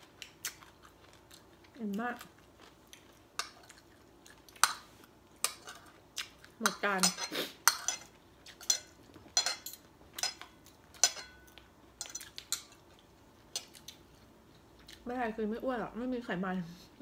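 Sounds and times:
metal spoon clinking on ceramic plate: 6.6 - 12.7.

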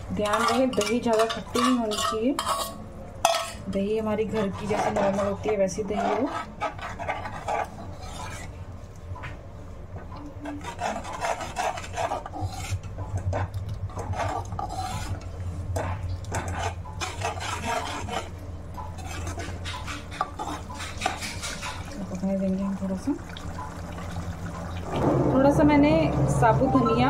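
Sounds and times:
low steady hum: 0.0 - 27.0
metal spoon scraping a pan: 0.1 - 8.6, 10.4 - 22.3.

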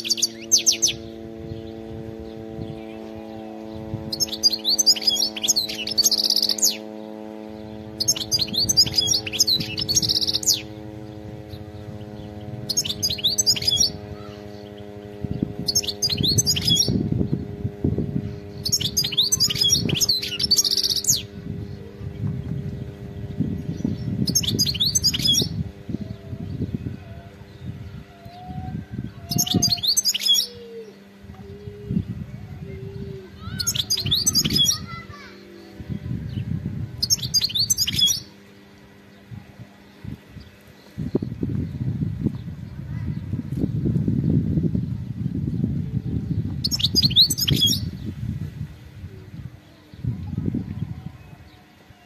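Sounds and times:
goldfinch twittering song: 0.0 - 45.4, 46.3 - 51.8
steady low hum: 0.0 - 52.0.

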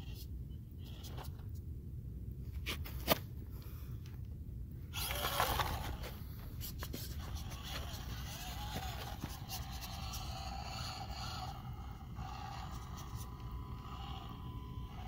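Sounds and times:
small electric motor whine: 4.9 - 15.0
tyres scraping on dirt and rock: 5.0 - 10.2.

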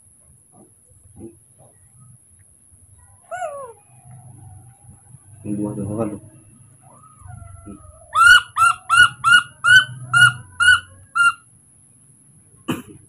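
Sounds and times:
baby monkey squeaking: 7.2 - 11.4.

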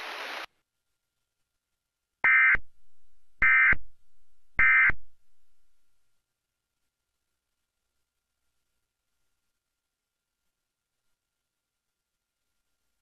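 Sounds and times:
background hiss: 0.0 - 13.0
digital data tone bursts: 2.2 - 2.7, 3.4 - 3.9, 4.6 - 5.1.

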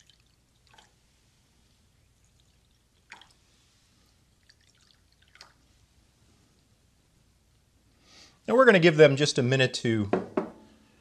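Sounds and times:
water pouring into glass bowls: 4.4 - 5.6.

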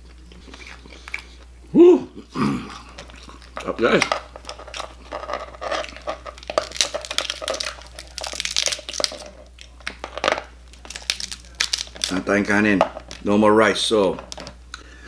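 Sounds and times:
crab meat tearing: 2.7 - 13.3
crab shell cracking and crunching: 2.8 - 13.3.

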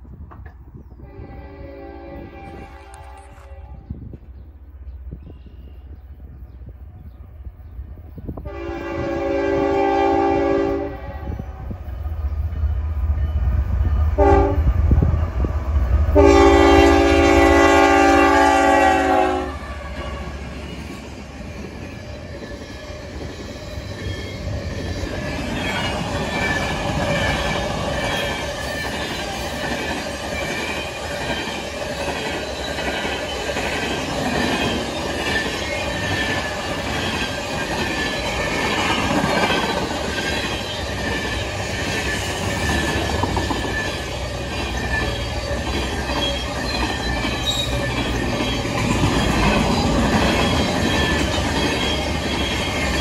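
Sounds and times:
train wheels rumbling on rails: 0.0 - 53.0
locomotive horn blasts: 1.0 - 3.9, 8.4 - 11.6, 14.2 - 15.0, 16.2 - 20.2
crossing bell ringing: 34.7 - 53.0.

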